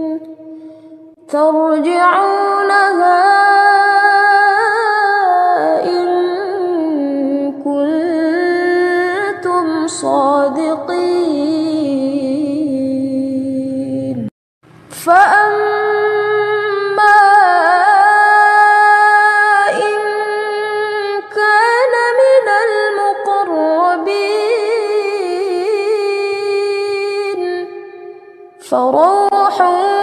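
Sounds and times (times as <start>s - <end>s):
woman reciting melodically: 0.0s - 14.3s, 14.9s - 30.0s.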